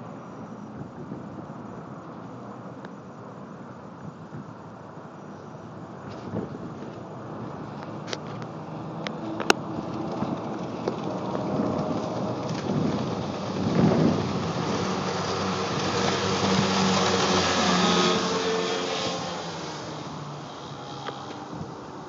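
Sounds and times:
outboard motor running: 0:08.8 - 0:22.0
rushing hiss of wake: 0:12.7 - 0:22.0.

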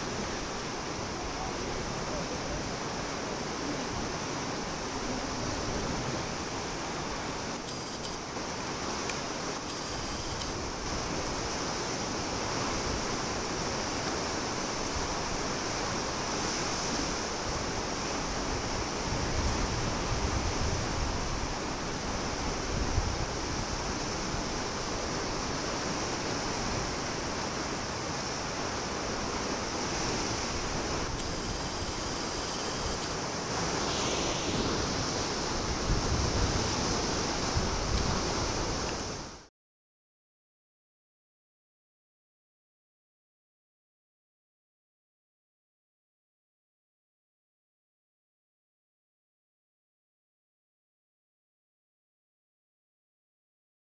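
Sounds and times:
wind gusting on microphone: 0:00.0 - 0:39.4
sea surf on rocks: 0:00.0 - 0:39.5.

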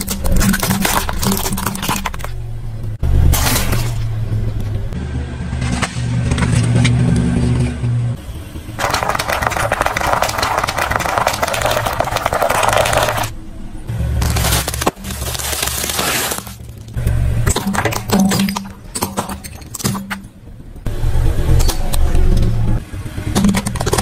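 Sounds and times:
bubble wrap popping under tyre: 0:08.8 - 0:13.3, 0:14.2 - 0:17.0
tyre crunching: 0:14.2 - 0:17.0.

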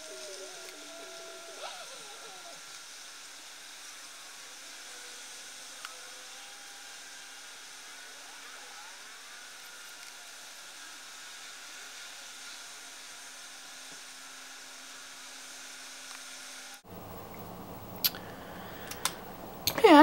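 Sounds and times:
low hiss of room tone: 0:00.0 - 0:20.0.

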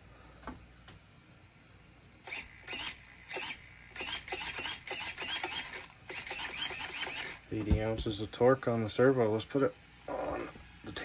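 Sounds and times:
steering servo whining: 0:02.3 - 0:07.6.

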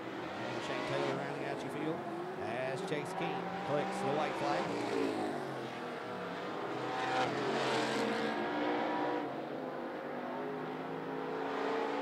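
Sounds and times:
race car engines revving: 0:00.0 - 0:12.0.

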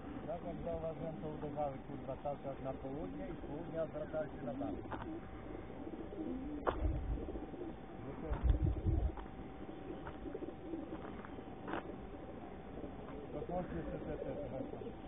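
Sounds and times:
pigeons cooing: 0:00.0 - 0:15.0
low rumbles: 0:04.8 - 0:13.3.

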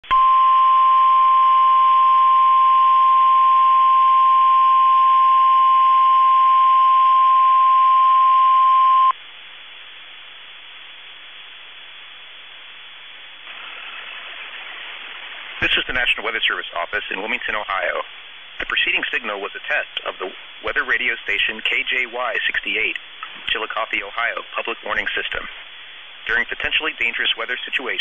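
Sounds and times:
weather radio alarm tone: 0:00.0 - 0:09.1
radio hiss: 0:10.4 - 0:28.0.

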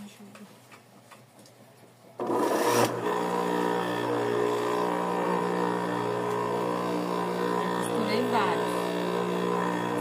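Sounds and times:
sewing machine motor humming: 0:02.2 - 0:10.0.

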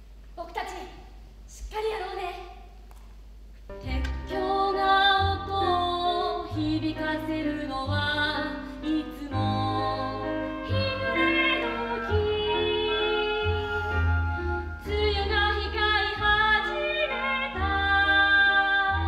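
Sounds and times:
instrumental accompaniment with bass: 0:03.6 - 0:19.0
woman singing: 0:03.8 - 0:13.9, 0:14.8 - 0:19.0.

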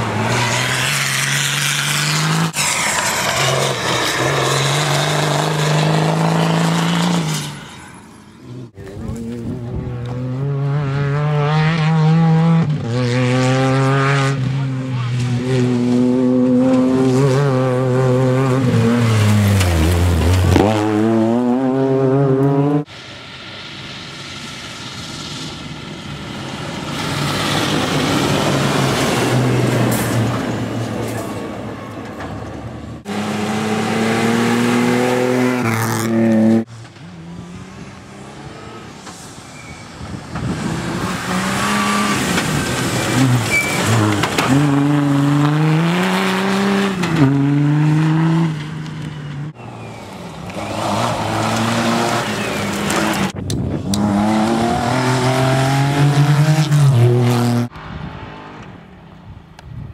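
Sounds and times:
rally cars racing past: 0:00.0 - 0:23.1, 0:32.6 - 0:59.2.

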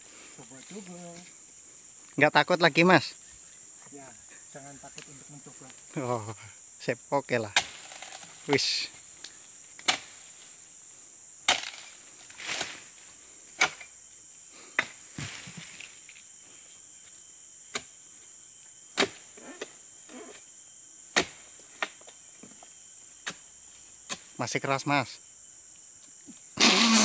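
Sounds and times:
insects chirring: 0:00.0 - 0:27.0
chisel blade chopping palm: 0:09.8 - 0:10.1, 0:11.5 - 0:11.8, 0:13.6 - 0:13.9, 0:21.1 - 0:22.0.

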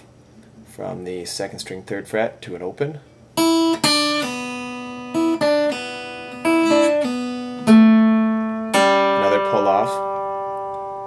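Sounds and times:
acoustic guitar plucked notes: 0:03.4 - 0:11.0.

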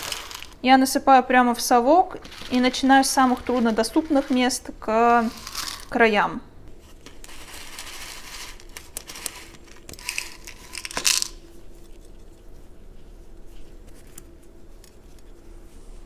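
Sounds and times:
gravel pouring into a pot: 0:00.0 - 0:00.6, 0:02.2 - 0:06.0, 0:07.3 - 0:11.4
pebbles clicking: 0:00.0 - 0:00.6, 0:02.2 - 0:04.6, 0:05.2 - 0:06.0, 0:07.2 - 0:11.4.

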